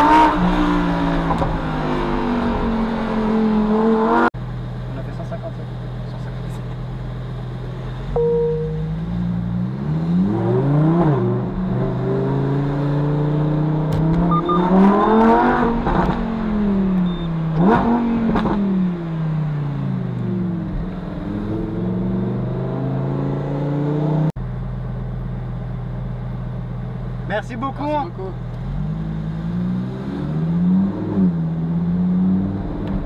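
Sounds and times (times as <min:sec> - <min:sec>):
steady low engine note: 0:04.4 - 0:10.4
car engine accelerating hard: 0:08.9 - 0:24.4.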